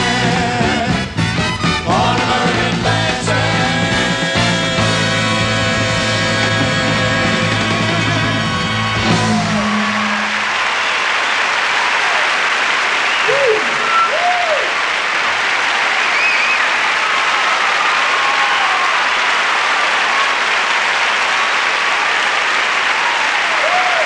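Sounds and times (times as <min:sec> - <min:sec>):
rock and roll band final chord: 0:00.0 - 0:11.0
audience applauding and cheering: 0:03.5 - 0:24.0
shouts and whistles: 0:08.3 - 0:14.8, 0:15.7 - 0:19.2, 0:23.0 - 0:24.0.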